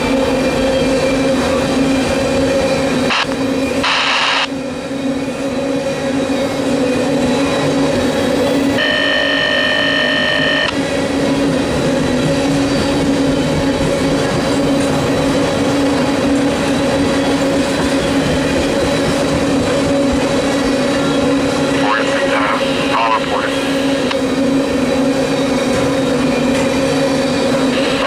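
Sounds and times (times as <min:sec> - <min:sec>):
train wheels rumbling on rail: 0:00.0 - 0:28.0
high steady squeal: 0:08.6 - 0:10.8.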